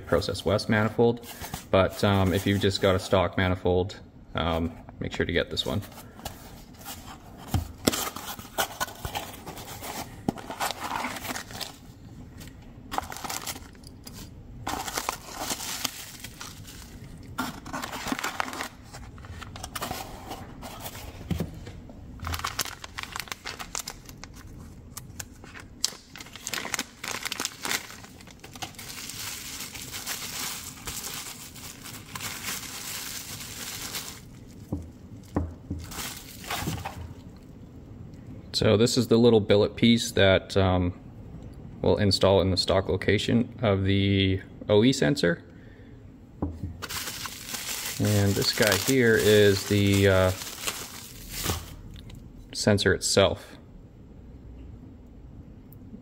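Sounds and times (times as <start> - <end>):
plastic packaging crinkling: 7.8 - 11.9, 12.9 - 20.0, 22.2 - 37.3, 46.8 - 52.1.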